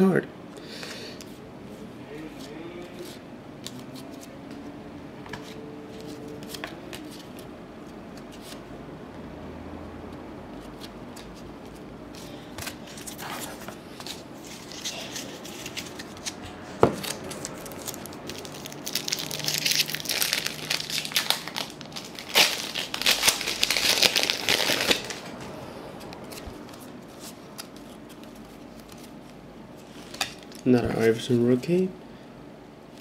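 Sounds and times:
foil wrapper tearing and crinkling: 17.0s - 25.3s.

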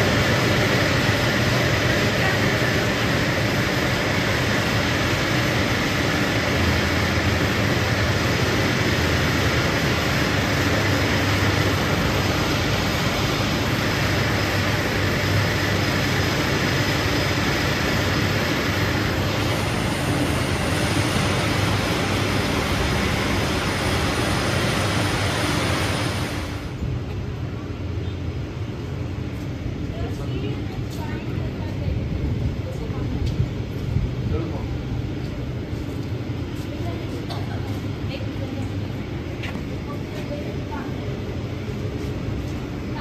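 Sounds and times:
factory machinery din: 0.0s - 27.2s.

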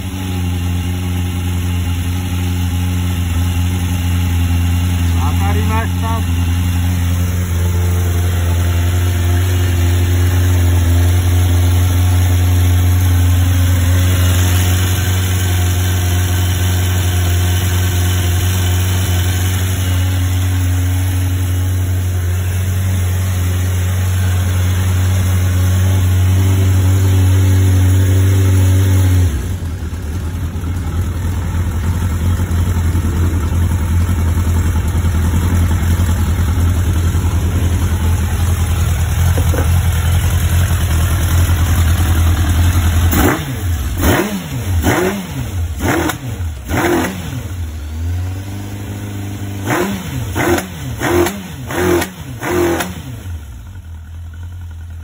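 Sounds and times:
motorcycle engine idling: 0.0s - 55.0s
rough noisy engine: 0.0s - 55.0s.

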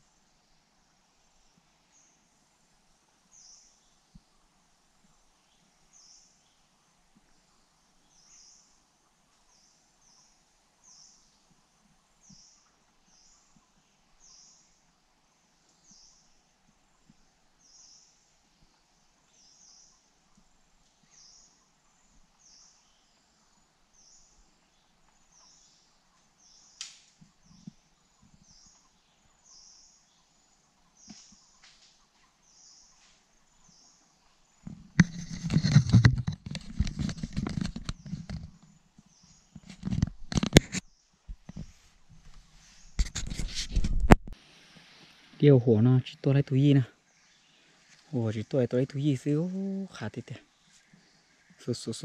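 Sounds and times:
sharp click: 26.8s - 27.2s.

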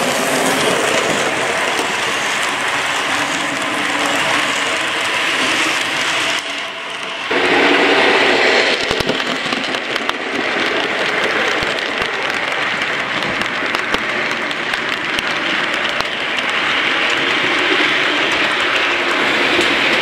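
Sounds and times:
model train wheels whirring: 0.0s - 20.0s
clicks over rail joints: 8.8s - 20.0s.

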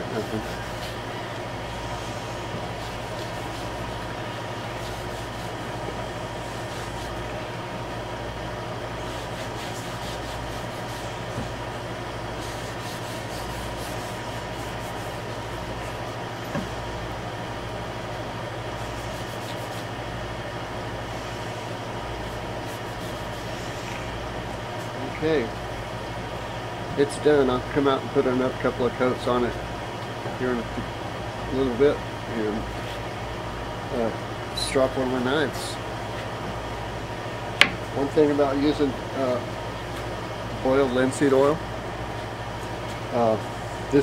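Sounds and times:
low machine hum: 0.0s - 44.0s
rag rubbing on wood: 1.8s - 7.3s, 9.0s - 16.8s, 18.7s - 20.0s, 21.0s - 25.0s.

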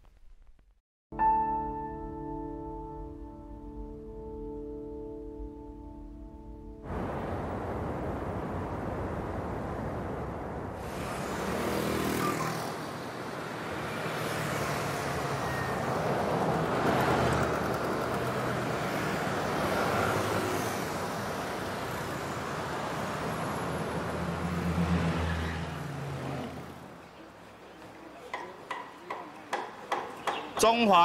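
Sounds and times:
cars passing: 6.8s - 31.0s.

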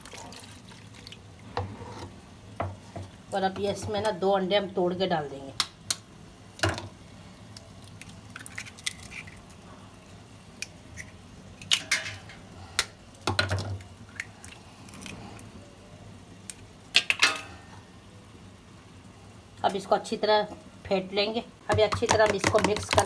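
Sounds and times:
eggshells tapped and cracking: 21.7s - 23.0s.

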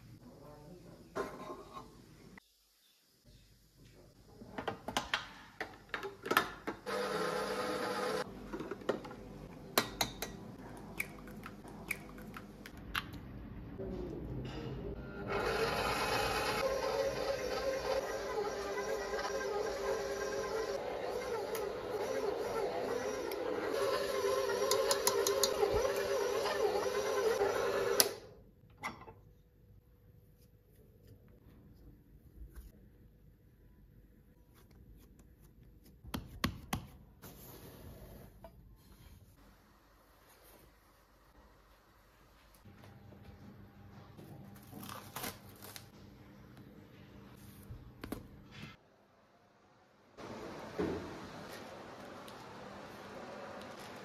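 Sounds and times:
stand mixer kneading dough: 6.9s - 8.2s, 15.3s - 28.1s.

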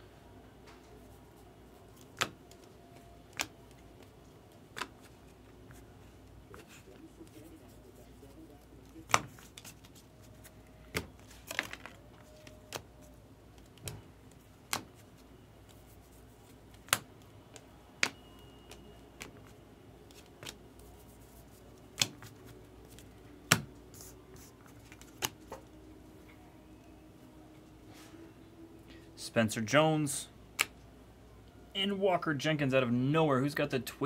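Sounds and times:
cards snapping: 2.0s - 2.7s, 3.3s - 4.1s, 4.7s - 5.1s, 9.0s - 12.9s, 14.6s - 15.1s, 16.7s - 19.5s, 20.1s - 20.6s, 21.2s - 25.6s.

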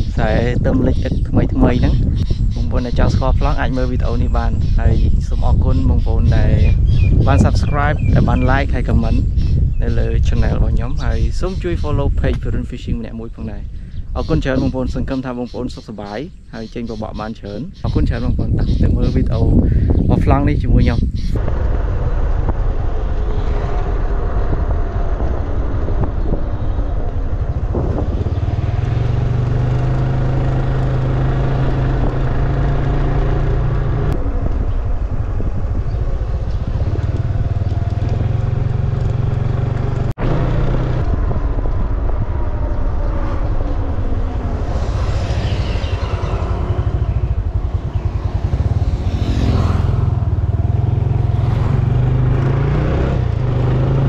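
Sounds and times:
scooter engine running: 44.3s - 52.6s.

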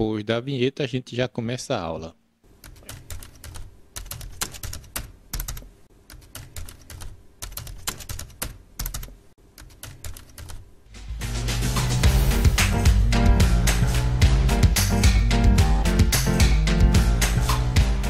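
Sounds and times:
fast typing on laptop keyboard: 2.6s - 10.6s.

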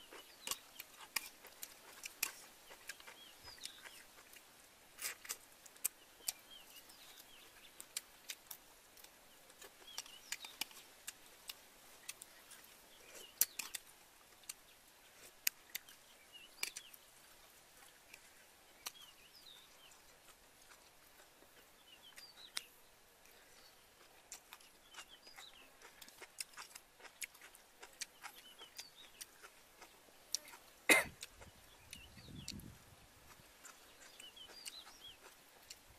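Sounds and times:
wet chewing and mouth clicks: 0.0s - 17.0s, 17.7s - 23.4s, 24.0s - 35.9s
birds chirping faintly: 0.0s - 35.9s.

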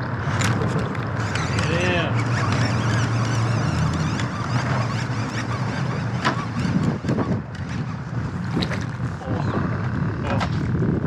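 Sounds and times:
low motor drone: 0.0s - 11.0s
wind on microphone: 0.2s - 11.0s.

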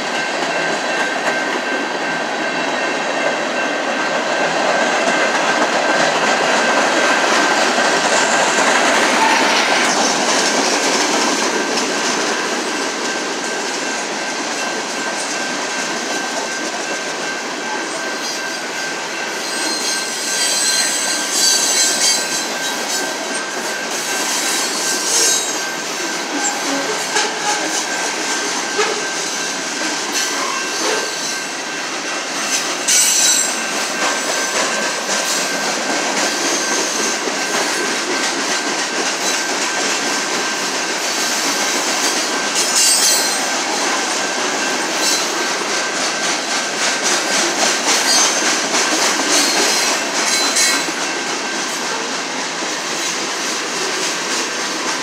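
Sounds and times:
train wheels rumbling over rails: 0.0s - 55.0s
high-pitched wheel squealing: 19.4s - 23.1s, 42.6s - 43.5s.

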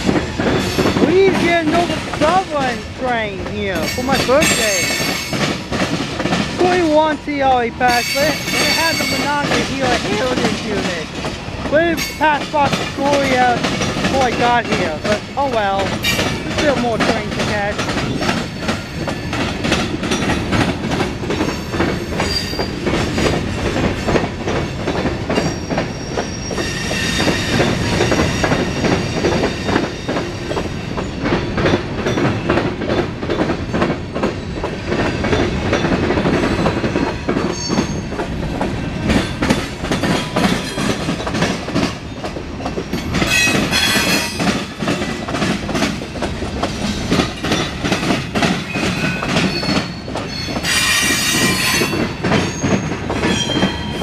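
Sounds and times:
train wheels clattering over rail joints: 0.0s - 54.0s
high wheel squeals: 37.5s - 38.1s, 48.7s - 54.0s.

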